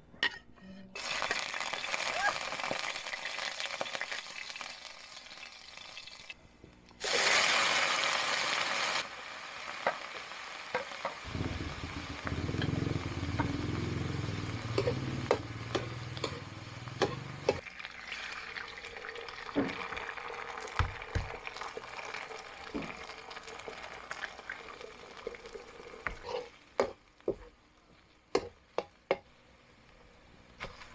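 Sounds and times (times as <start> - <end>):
vegetables sizzling in hot oil: 1.0 - 6.4, 7.0 - 28.9
spatula scraping wok: 11.8 - 17.6, 26.0 - 27.6.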